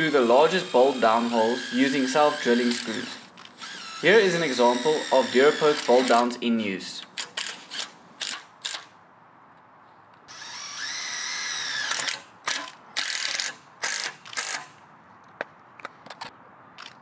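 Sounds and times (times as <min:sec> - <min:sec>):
cordless driver whining: 0:00.0 - 0:06.3, 0:10.3 - 0:14.7.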